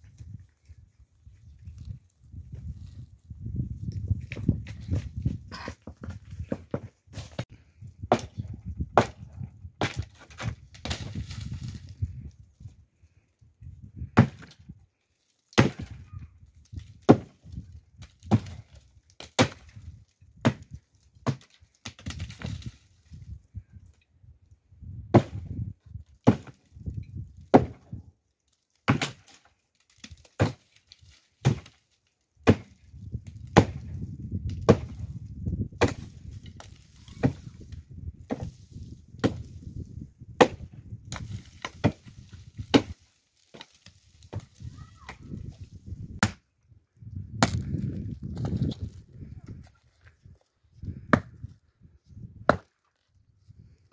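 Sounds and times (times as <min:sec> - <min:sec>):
axe chopping firewood: 0:04.2 - 0:11.6, 0:14.2 - 0:14.7, 0:15.5 - 0:16.1, 0:16.7 - 0:22.7, 0:25.1 - 0:28.0, 0:28.8 - 0:31.8, 0:32.4 - 0:46.5, 0:47.3 - 0:48.9, 0:51.0 - 0:51.5, 0:52.4 - 0:53.0.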